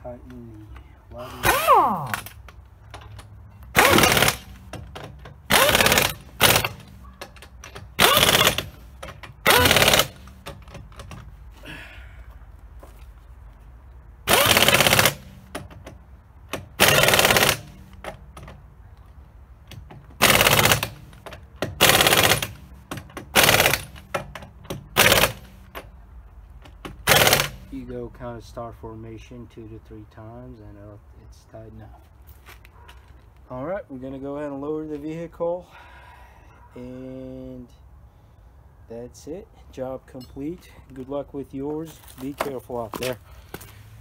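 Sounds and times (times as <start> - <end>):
pneumatic impact wrench hammering: 1.4 - 11.3, 14.2 - 18.6, 19.7 - 25.9, 26.6 - 27.7.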